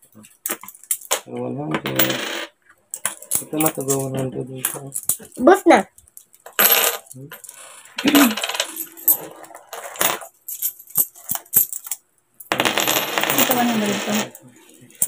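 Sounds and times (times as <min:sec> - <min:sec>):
coins clinking on tabletop: 0:00.5 - 0:05.4, 0:06.4 - 0:14.4
coins jingling: 0:06.2 - 0:14.4.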